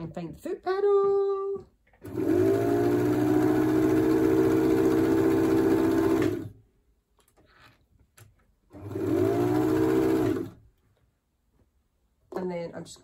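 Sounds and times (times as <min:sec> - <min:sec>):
sewing machine stitching: 0:02.0 - 0:06.6, 0:08.7 - 0:10.6.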